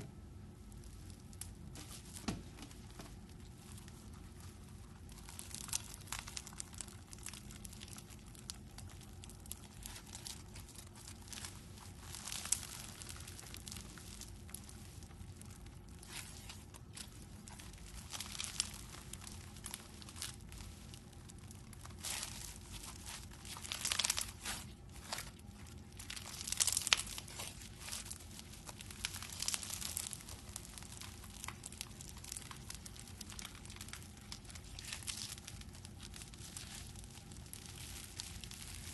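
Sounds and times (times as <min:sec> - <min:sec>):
foam slime crackling: 0:00.4 - 0:38.9.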